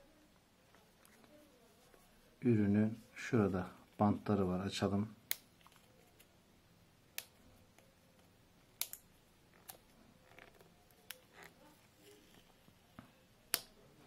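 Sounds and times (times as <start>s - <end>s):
faint scratching and rustling: 0.6s - 3.8s, 9.5s - 13.2s.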